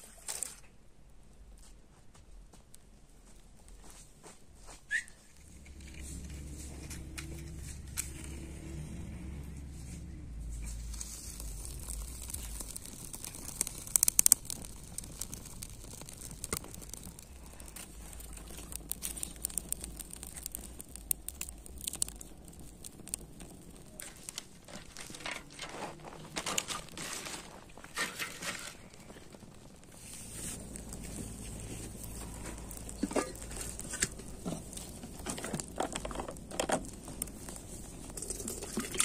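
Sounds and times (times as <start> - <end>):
campfire crackling and popping: 4.9 - 39.0.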